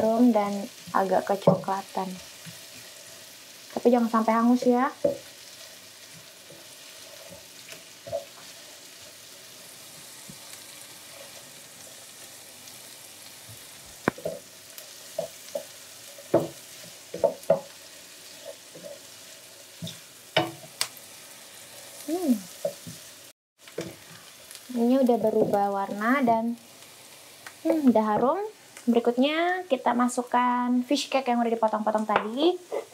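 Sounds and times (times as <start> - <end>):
onions sizzling in a frying pan: 0.0 - 32.9
wooden spatula scraping a pan: 4.6 - 9.2.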